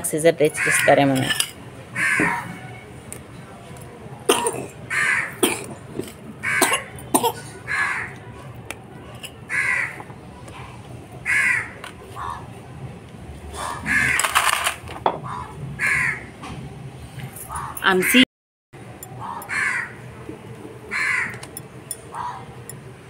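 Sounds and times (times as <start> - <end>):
crow cawing: 2.0 - 2.6, 4.9 - 5.4, 6.4 - 6.8, 7.7 - 8.2, 9.5 - 10.0, 11.2 - 12.4, 13.6 - 14.2, 15.2 - 16.3, 19.2 - 20.0, 20.9 - 21.4, 22.1 - 22.5.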